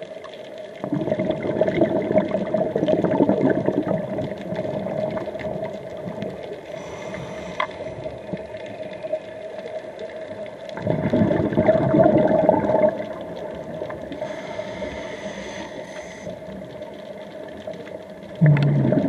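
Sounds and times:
exhaled bubbles gurgling: 0.0s - 19.0s
regulator inhalation hiss: 6.7s - 8.2s, 14.1s - 16.5s.

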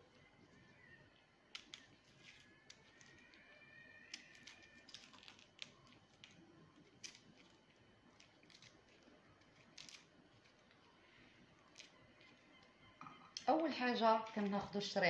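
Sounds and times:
faint steady high tone: 10.9s - 15.0s.

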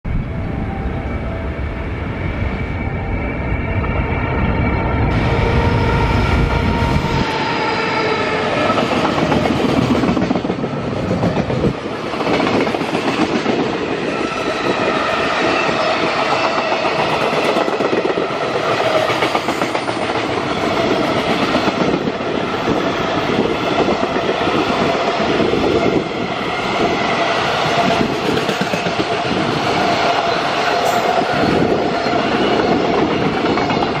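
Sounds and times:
locomotive whine: 0.1s - 34.0s.

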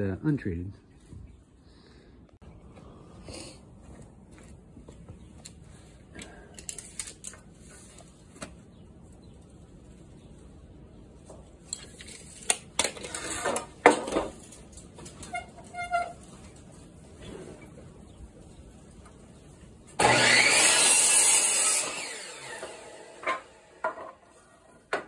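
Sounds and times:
wooden board scraping and knocking: 12.5s - 14.5s, 23.2s - 25.0s.

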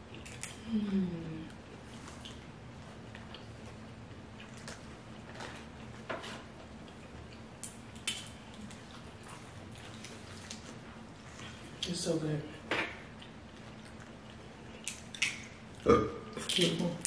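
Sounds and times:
wet eating clicks and smacks: 6.9s - 8.8s, 13.2s - 15.8s.

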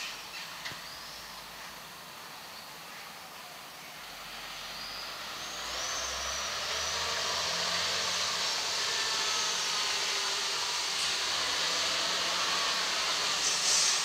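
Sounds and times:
diesel truck approaching: 0.0s - 14.0s
low engine hum: 3.8s - 14.0s.

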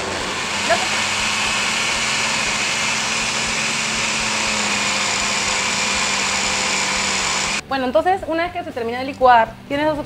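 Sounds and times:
blender motor whirring: 0.0s - 7.6s.

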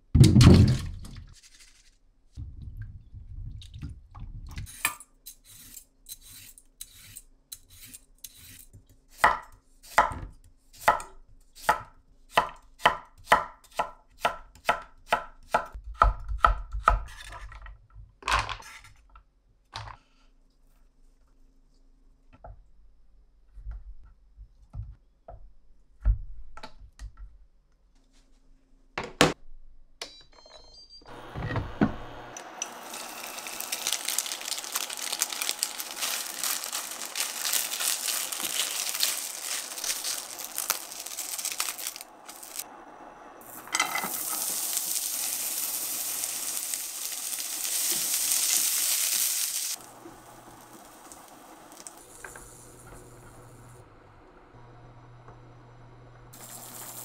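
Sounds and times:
food frying in hot oil: 32.6s - 42.7s, 43.4s - 52.4s, 56.4s - 57.0s.

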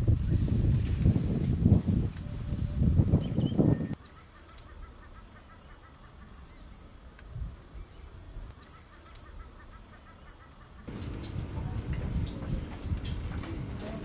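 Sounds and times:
quick chirping calls: 3.4s - 10.9s
high-pitched insect drone: 4.0s - 10.9s.

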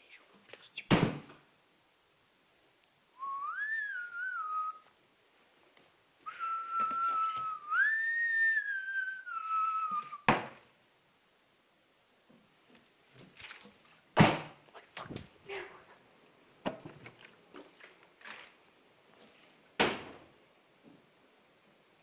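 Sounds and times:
sharp thud: 0.9s - 1.4s, 10.3s - 10.6s, 14.2s - 14.6s, 19.8s - 20.2s
person whistling a tune: 3.2s - 4.8s, 6.3s - 10.3s.

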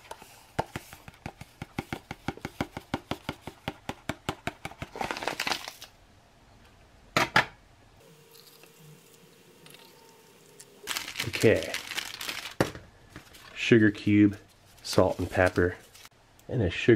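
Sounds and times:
packet crinkling: 4.9s - 5.9s, 9.7s - 12.6s, 14.5s - 16.1s.

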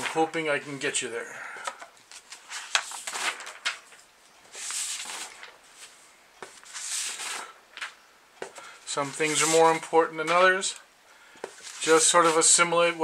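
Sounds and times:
paper sliding rustles: 1.6s - 8.0s, 8.9s - 10.8s, 11.4s - 13.0s
paper sheets tapping and crackling: 1.6s - 10.4s, 11.4s - 12.6s.

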